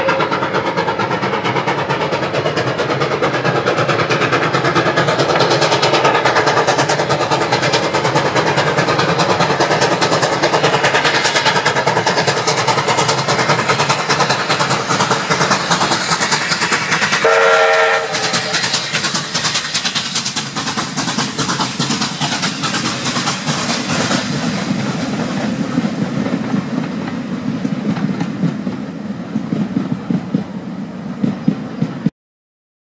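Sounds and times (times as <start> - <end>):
steam locomotive exhaust beating: 0.0 - 32.1
train wheels clattering over rails: 0.0 - 32.1
steam whistle blast: 17.2 - 18.7.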